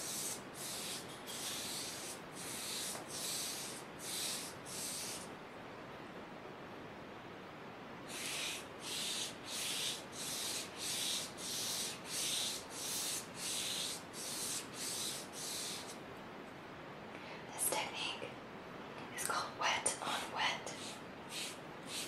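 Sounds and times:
foam brush swishing on paper: 0.0 - 5.3, 8.1 - 16.0, 20.8 - 22.0.

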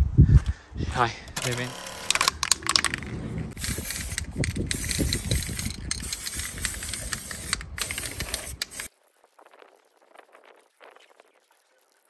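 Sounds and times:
aerosol spray can hissing: 3.6 - 8.9.

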